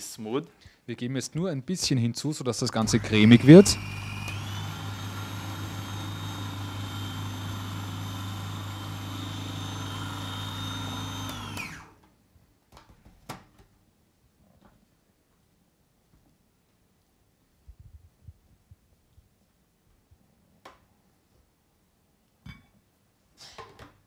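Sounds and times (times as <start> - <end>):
food processor motor running: 2.8 - 11.9.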